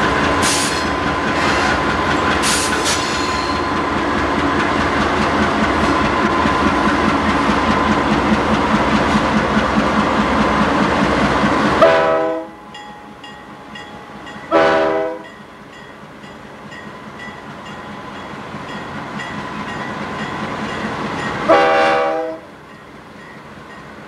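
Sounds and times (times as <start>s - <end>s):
diesel locomotives rumbling: 0.0s - 24.0s
locomotive air horn blasts: 11.8s - 12.6s, 14.5s - 15.3s, 21.5s - 22.5s.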